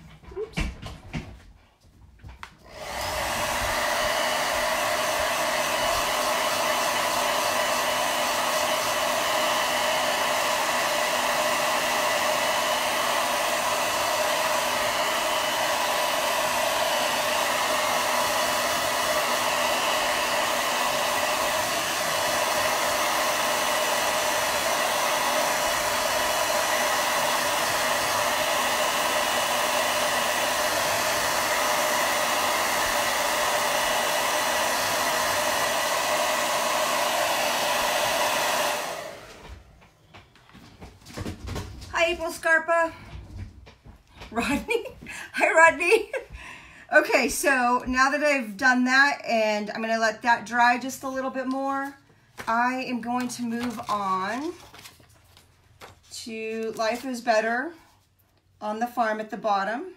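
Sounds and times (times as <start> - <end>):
hair dryer blowing: 2.4 - 43.2, 44.1 - 54.9, 56.0 - 59.8.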